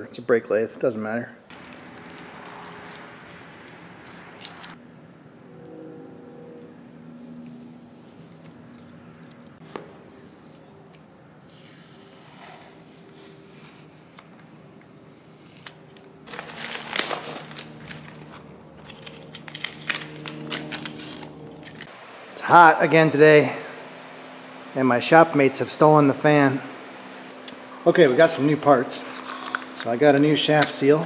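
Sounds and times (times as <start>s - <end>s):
masking tape peeling crackle: 1.5s - 4.8s, 15.4s - 21.9s
high insect trill: 1.5s - 31.0s.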